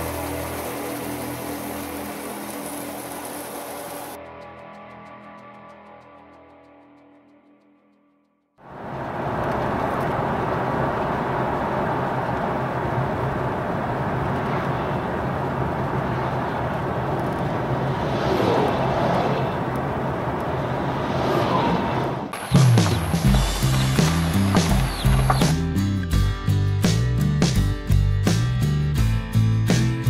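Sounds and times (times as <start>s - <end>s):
road and engine noise in cabin: 8.7s - 25.4s.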